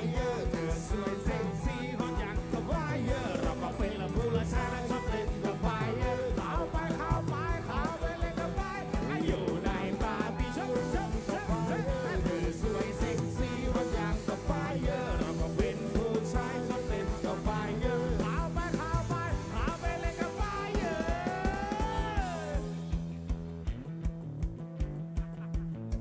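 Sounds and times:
live rock band playing: 0.0 - 26.0
steady drum beat: 0.0 - 26.0.

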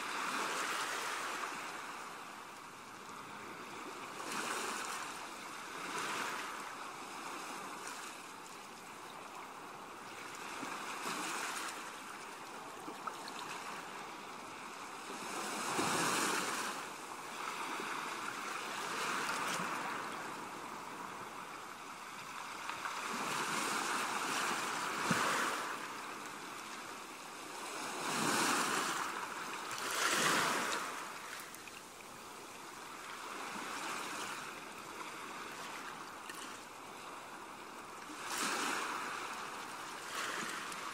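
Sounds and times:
ocean waves washing: 9.5 - 40.9.

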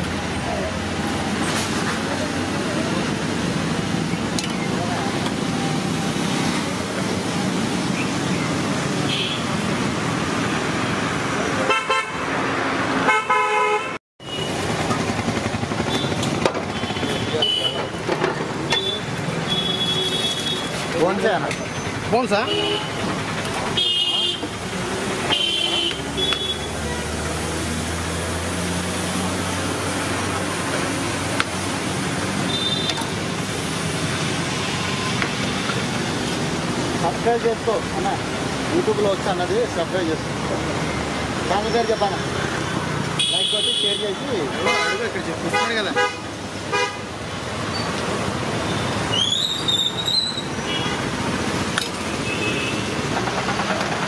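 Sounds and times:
roadside traffic noise: 0.0 - 54.0
vehicle horns honking: 9.0 - 9.6, 11.6 - 12.3, 13.0 - 14.6, 15.9 - 18.0, 18.7 - 20.9, 22.4 - 23.1, 23.7 - 24.6, 25.2 - 27.2, 32.4 - 33.1, 43.2 - 47.2, 50.6 - 51.1, 52.1 - 53.0.

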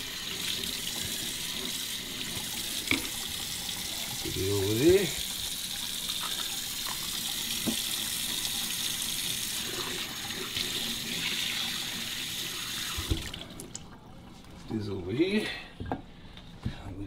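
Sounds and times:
faucet running water into sink: 0.0 - 14.2.

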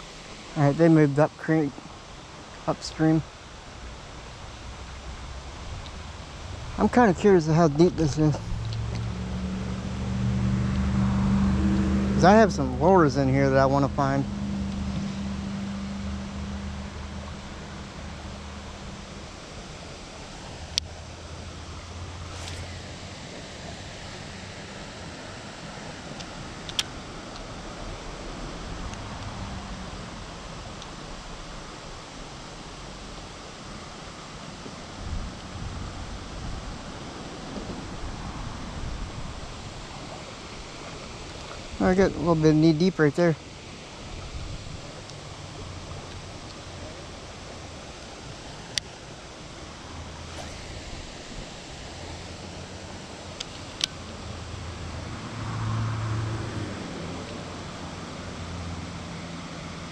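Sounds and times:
creek water flowing: 0.0 - 59.9
wind rumble on microphone: 4.7 - 30.6, 34.6 - 42.4, 44.0 - 46.9
faint ticks: 8.6 - 9.1.

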